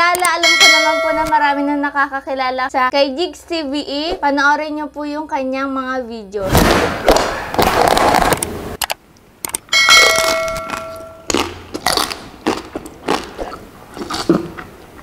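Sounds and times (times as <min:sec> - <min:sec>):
bell-like ding: 0:00.4 - 0:01.5, 0:09.7 - 0:11.3
person biting and chewing: 0:07.1 - 0:08.4, 0:10.0 - 0:15.0.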